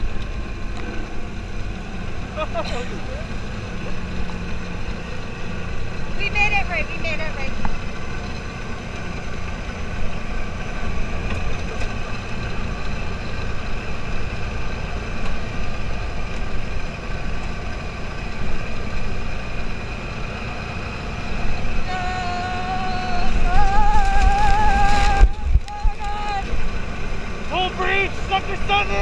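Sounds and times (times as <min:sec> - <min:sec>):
dune buggy engine running: 0:00.0 - 0:29.0
low rumble on microphone: 0:21.5 - 0:26.8.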